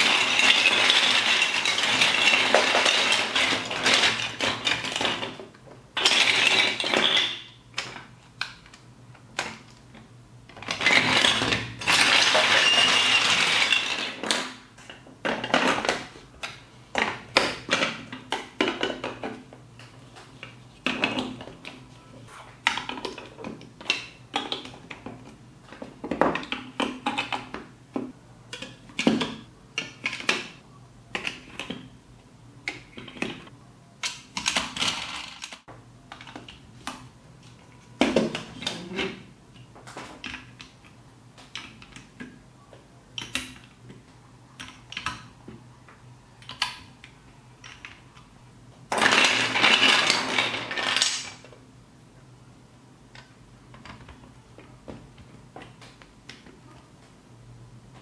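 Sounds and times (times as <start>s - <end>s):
plastic toy bricks clicking: 34.0s - 37.1s, 44.6s - 45.3s, 46.4s - 48.3s, 48.9s - 51.5s.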